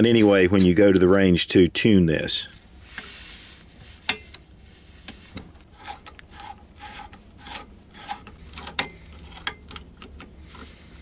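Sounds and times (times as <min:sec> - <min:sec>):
screwdriver scraping and clicking metal: 0:05.1 - 0:10.7.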